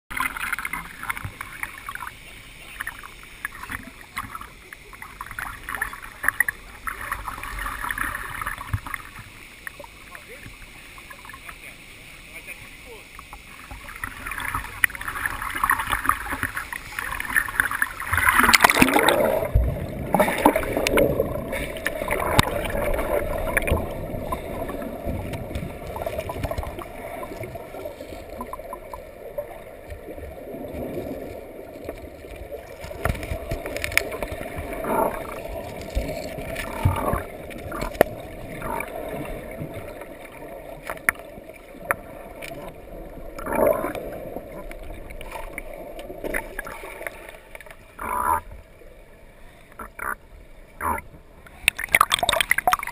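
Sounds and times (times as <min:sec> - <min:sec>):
underwater river rush: 0:00.0 - 0:52.9
river water splashing: 0:00.1 - 0:52.9
short gurgles: 0:14.1 - 0:29.0.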